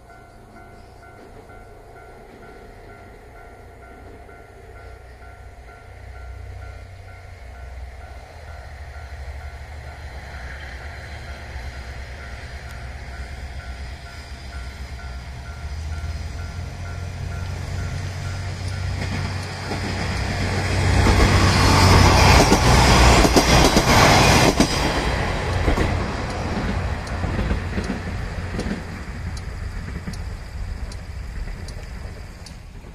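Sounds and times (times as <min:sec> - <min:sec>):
level crossing warning bell: 0:00.0 - 0:22.4
diesel train rumble: 0:00.0 - 0:32.9
train wheels clickety-clack: 0:08.4 - 0:32.9.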